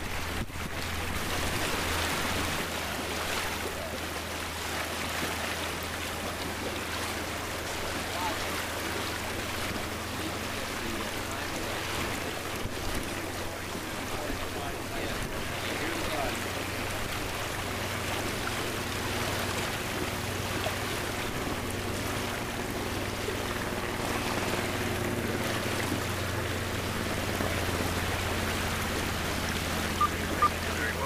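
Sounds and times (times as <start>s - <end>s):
water rushing along hull: 0.0s - 31.0s
short electronic beeps: 30.0s - 30.6s.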